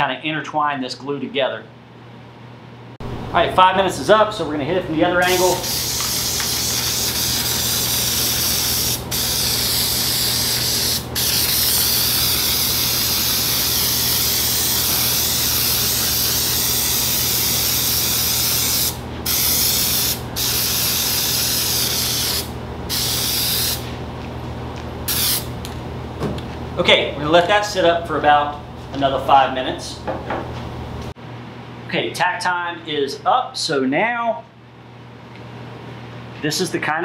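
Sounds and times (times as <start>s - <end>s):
aerosol can spraying: 5.2s - 23.9s, 25.1s - 25.5s.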